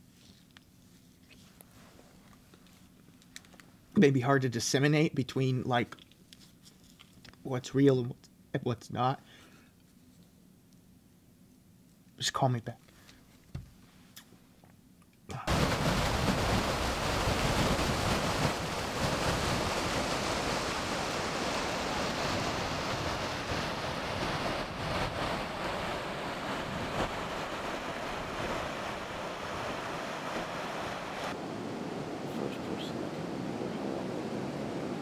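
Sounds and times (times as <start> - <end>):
loud steady rushing noise: 15.5 - 35.0.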